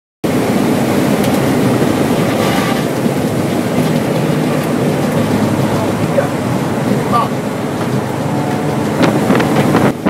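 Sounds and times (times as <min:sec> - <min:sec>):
car engine at speed: 0:00.2 - 0:10.0
road and wind noise: 0:00.2 - 0:10.0.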